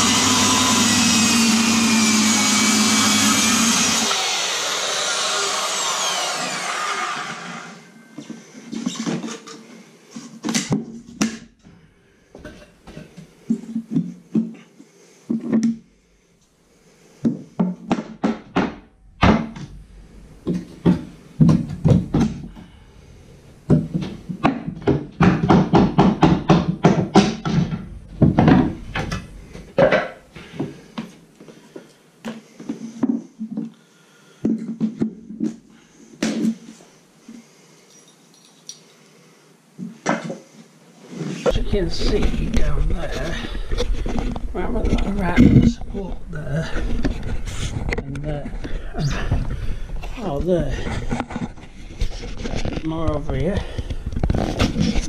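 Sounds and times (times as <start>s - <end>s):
circular saw running: 0.0s - 7.8s
hammer blows on wooden floorboards: 20.4s - 22.8s, 23.7s - 31.2s.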